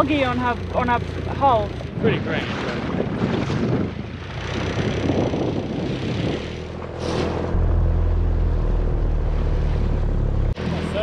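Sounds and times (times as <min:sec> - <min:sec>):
small outboard motor: 0:00.0 - 0:07.9
wind and water rushing: 0:01.8 - 0:09.9
low engine drone: 0:04.1 - 0:11.0.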